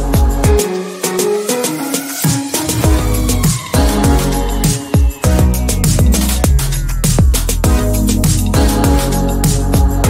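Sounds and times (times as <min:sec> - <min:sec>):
electronic music with driving beat: 0:00.0 - 0:10.0
deep falling bass notes: 0:02.6 - 0:09.0.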